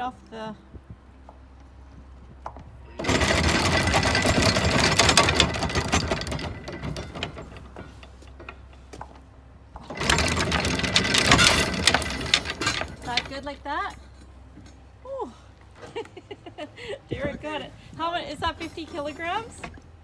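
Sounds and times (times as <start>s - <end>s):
anchor chain rattling: 3.0s - 14.8s.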